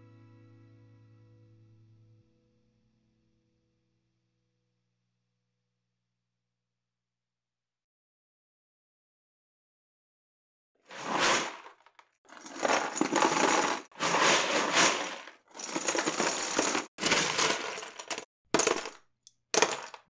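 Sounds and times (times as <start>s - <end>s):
clattering crashes: 10.9s - 19.0s, 19.6s - 20.0s.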